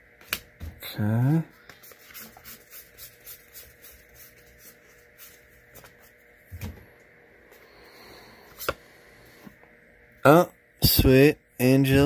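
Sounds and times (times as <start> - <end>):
cards swishing: 1.6 - 6.2.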